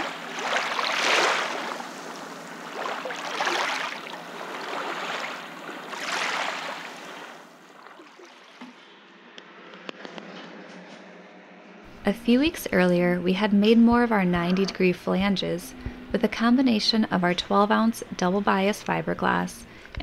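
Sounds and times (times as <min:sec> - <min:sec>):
small waves washing on sand: 0:00.0 - 0:08.8.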